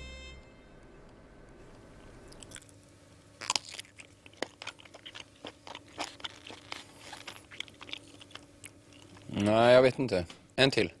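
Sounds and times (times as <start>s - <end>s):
person chewing close to microphone: 2.3s - 2.8s, 3.4s - 10.0s.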